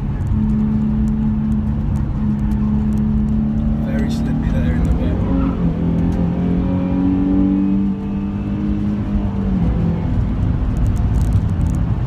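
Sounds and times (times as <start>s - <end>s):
car engine accelerating: 0.0s - 12.0s
road noise: 0.0s - 12.0s.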